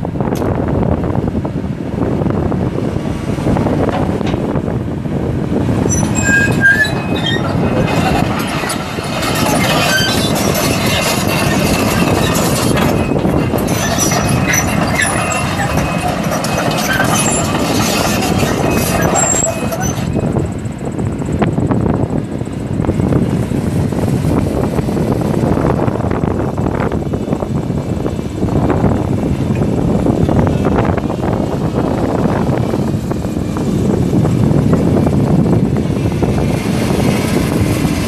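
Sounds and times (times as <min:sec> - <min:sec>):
diesel engine under load: 0:00.0 - 0:38.0
track clanks and squeaks: 0:05.8 - 0:21.6.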